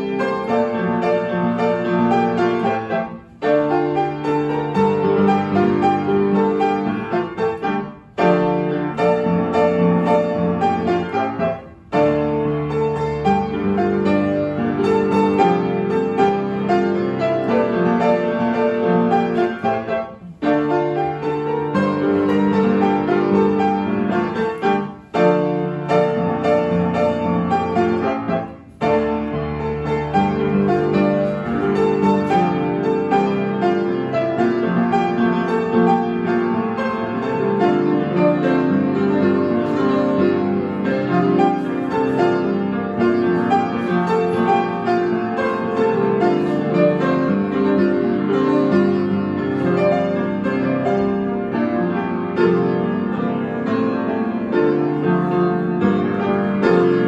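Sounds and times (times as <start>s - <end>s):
upright piano playing pop song: 0.0s - 57.0s.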